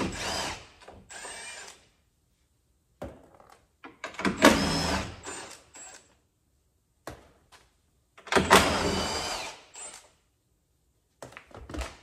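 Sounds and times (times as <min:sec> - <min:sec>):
power drill running: 0:00.0 - 0:01.8, 0:04.4 - 0:06.0, 0:08.5 - 0:10.1.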